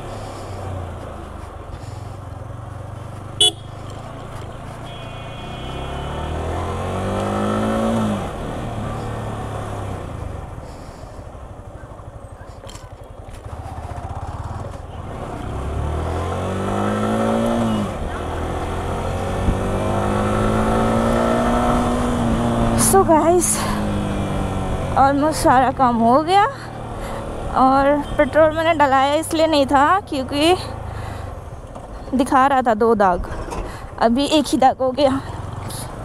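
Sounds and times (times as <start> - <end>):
motorcycle engine accelerating: 0.0 - 32.1.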